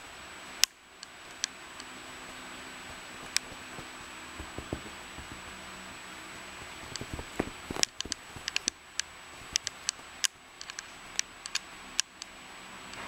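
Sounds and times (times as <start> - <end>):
faint steady hiss: 0.0 - 13.0
sharp irregular clicks: 2.9 - 5.6, 6.6 - 13.0
soft thuds: 2.9 - 5.8, 6.4 - 8.5.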